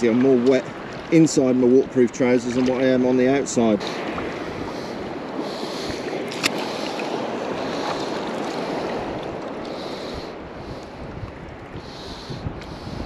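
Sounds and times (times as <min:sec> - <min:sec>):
sea water sloshing and lapping: 0:00.0 - 0:13.0
wind on microphone: 0:03.7 - 0:13.0.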